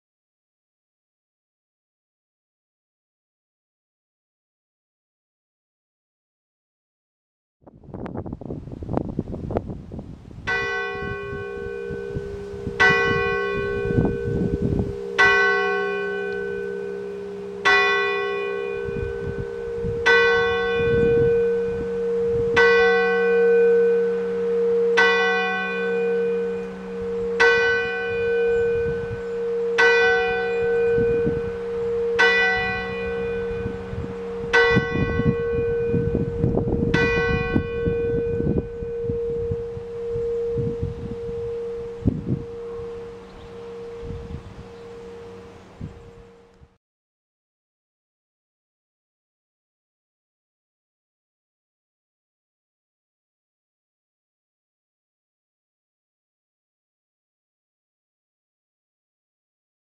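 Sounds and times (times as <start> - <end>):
wind buffeting microphone: 7.7 - 46.8
church bell striking: 10.5 - 46.6.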